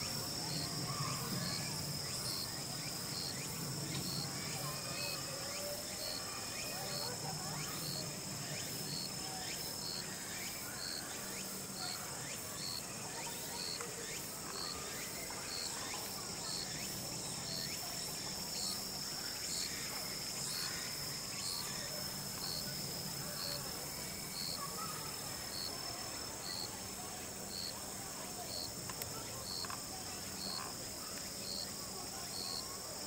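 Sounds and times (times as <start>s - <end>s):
crickets trilling: 0.0s - 33.0s
faint voices: 0.0s - 33.0s.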